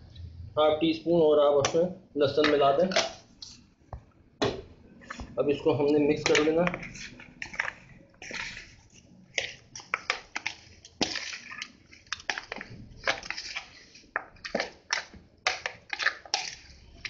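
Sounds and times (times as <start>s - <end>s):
spoon scraping plastic bowl: 4.9s - 17.0s.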